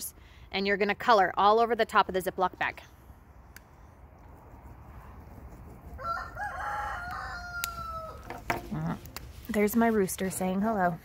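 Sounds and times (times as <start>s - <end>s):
rooster crowing: 6.0s - 8.3s.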